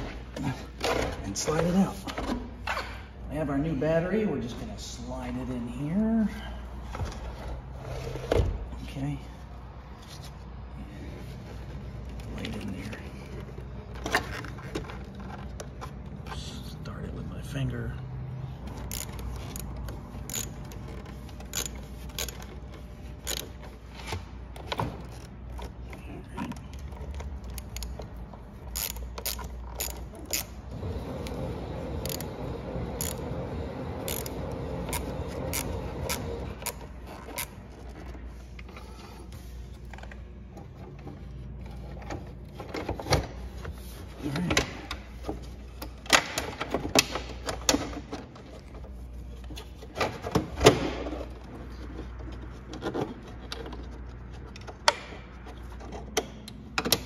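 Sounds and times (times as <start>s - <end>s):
metal clicks and scrapes of hand tools: 26.6s - 30.6s.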